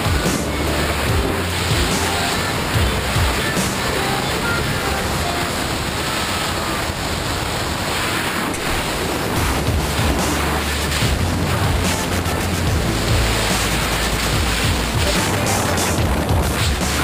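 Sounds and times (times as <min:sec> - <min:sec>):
wind rush buffeting microphone: 0:05.5 - 0:17.0.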